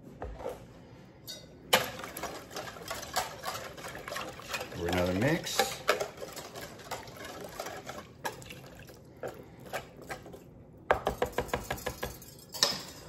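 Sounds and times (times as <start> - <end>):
liquid sloshing: 1.7 - 10.5.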